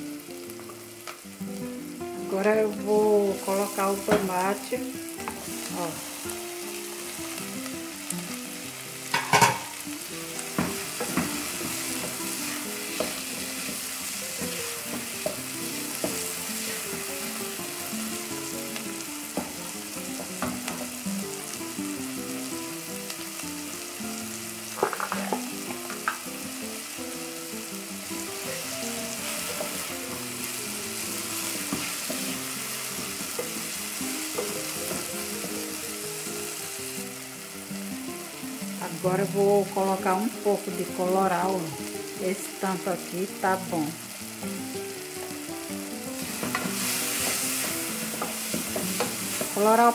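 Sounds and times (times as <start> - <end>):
vegetables sizzling in a pot: 0.0 - 49.9
wooden spoon knocking on pot: 24.8 - 26.2.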